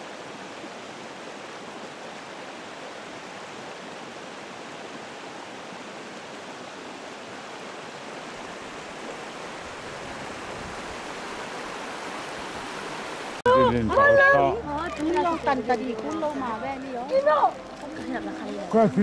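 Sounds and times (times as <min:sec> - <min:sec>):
river running over stones: 0:00.0 - 0:19.0.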